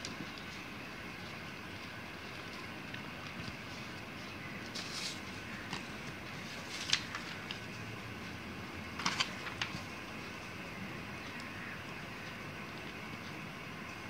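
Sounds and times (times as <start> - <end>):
paper crackling and rustling: 0.0 - 13.4
steady background hiss: 0.0 - 14.0.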